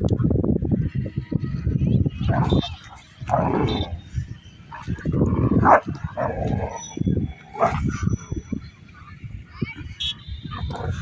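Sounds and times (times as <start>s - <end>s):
dog barking: 5.6s - 6.3s.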